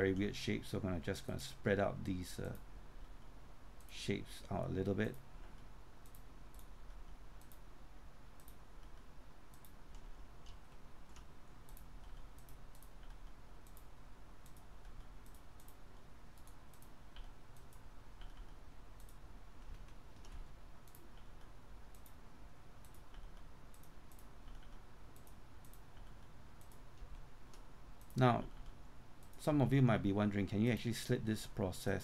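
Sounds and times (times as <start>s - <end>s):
faint low hum: 0.0s - 32.0s
mouse and keyboard clicking: 8.4s - 15.8s, 22.8s - 29.4s.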